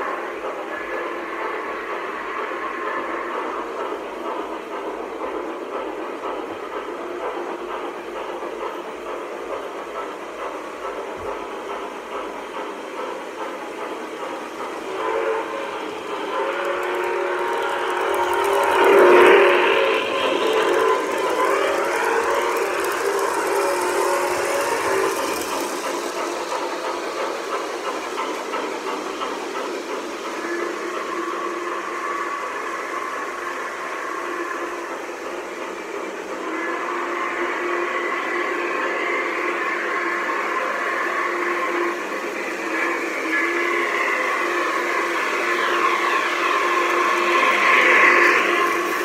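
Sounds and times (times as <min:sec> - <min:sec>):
model train cars rumbling: 0:00.0 - 0:49.0
electronic steam hiss: 0:09.2 - 0:49.0
train whistle tones: 0:14.8 - 0:27.4, 0:30.3 - 0:35.0, 0:36.4 - 0:49.0.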